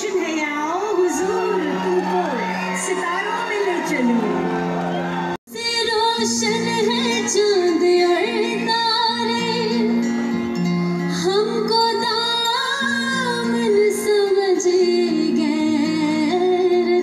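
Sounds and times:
woman singing through a pa: 5.5 - 9.9, 11.1 - 17.0.

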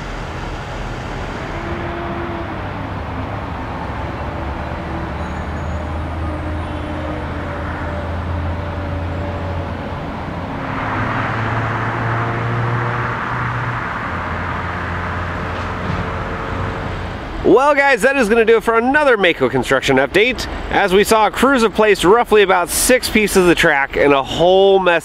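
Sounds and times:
loud rushing noise: 0.0 - 5.3, 7.2 - 22.0
low engine drone: 0.0 - 24.1
outdoor background noise: 0.0 - 25.0.

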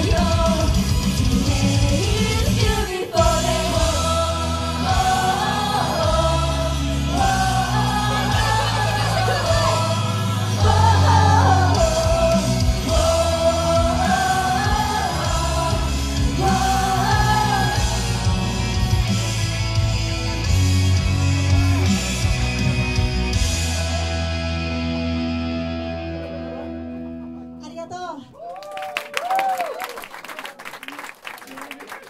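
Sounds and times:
band backing music with heavy bass: 0.0 - 27.6
women singing into microphones: 1.5 - 18.3.

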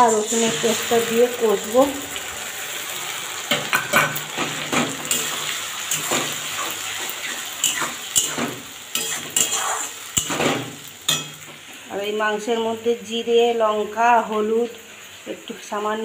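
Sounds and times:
oil sizzling: 0.0 - 16.0
metal spoon scraping a pan: 3.5 - 11.5.

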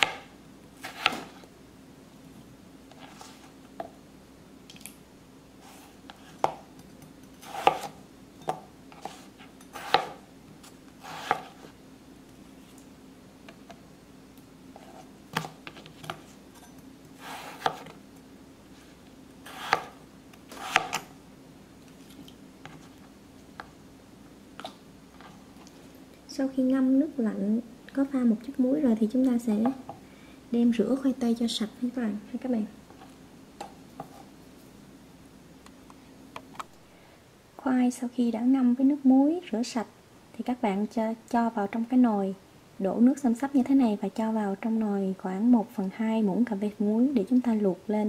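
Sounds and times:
knife chopping on cutting board: 0.0 - 1.4, 7.4 - 10.2, 11.0 - 11.7, 17.2 - 17.9, 19.5 - 21.1
knife scraping pieces off: 7.4 - 8.0, 11.0 - 11.6, 19.5 - 21.1.

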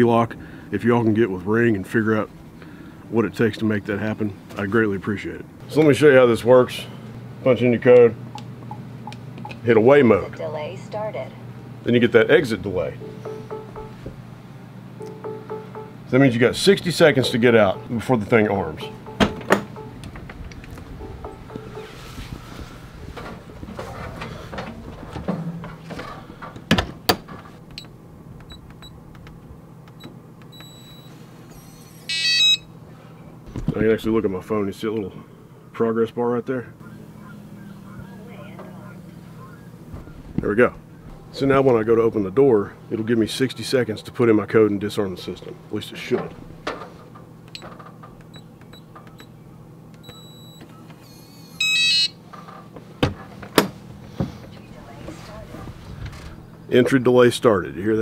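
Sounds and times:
long electronic beep: 12.9 - 14.1, 15.0 - 16.3, 16.9 - 20.1, 21.0 - 22.2, 30.6 - 32.7, 51.6 - 52.2
multi-note electronic chime: 12.9 - 14.1, 15.0 - 20.1, 21.0 - 22.2
short electronic beeps: 13.0 - 14.1, 15.0 - 16.1, 17.1 - 18.1, 18.8 - 20.0, 21.0 - 22.1, 30.5 - 32.7, 50.0 - 52.1
door closing and latching: 19.1 - 21.2, 23.1 - 27.6, 50.0 - 53.8.

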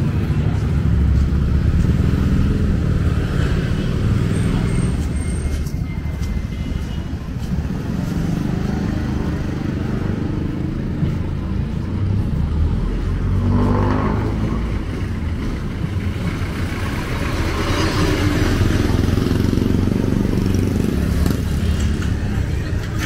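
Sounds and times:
street traffic engines: 0.0 - 23.0
engine revving: 12.5 - 15.0.

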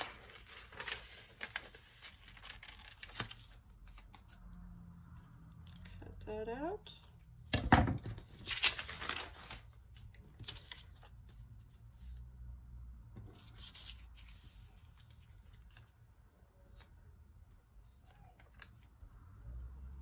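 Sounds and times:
paper rustling and sliding: 0.0 - 4.3, 8.2 - 12.2.

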